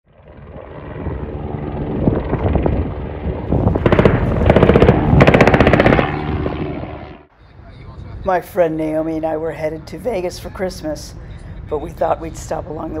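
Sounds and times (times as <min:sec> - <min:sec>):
helicopter rotor and engine drone: 0:00.1 - 0:08.2
machine-gun fire: 0:03.6 - 0:07.1.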